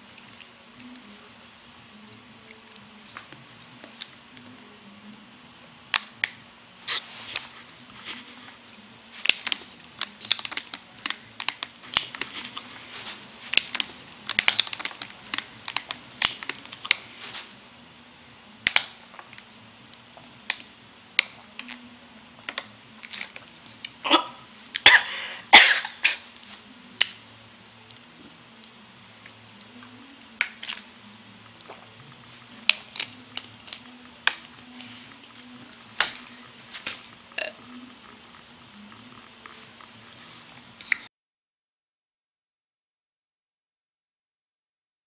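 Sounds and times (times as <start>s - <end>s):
faint steady hum: 0.0s - 41.1s
sharp clicks and crackles: 9.2s - 17.0s.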